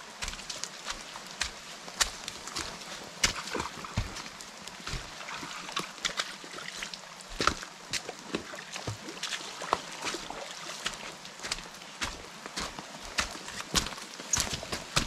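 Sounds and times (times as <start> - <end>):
footsteps squelching in mud: 0.1 - 15.0
rain hissing: 1.0 - 5.2.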